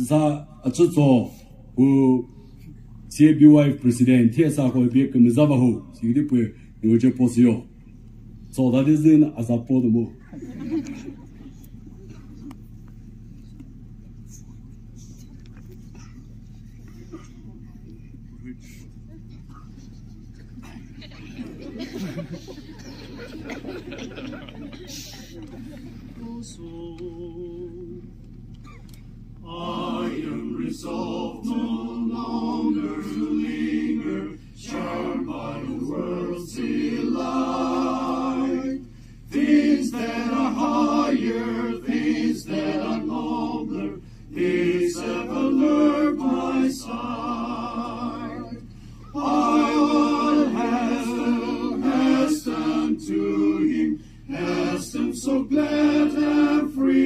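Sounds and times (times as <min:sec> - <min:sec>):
men and women singing unaccompanied: 0:26.2 - 0:28.0, 0:29.4 - 0:57.0.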